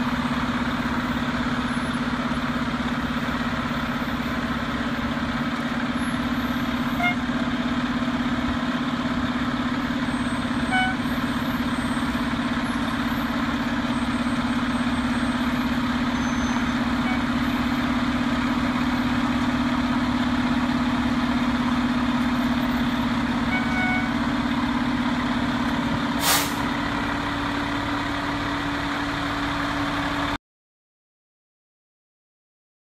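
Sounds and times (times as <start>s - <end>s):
truck diesel engine running: 0.0s - 30.4s
air brake hiss: 26.2s - 26.7s.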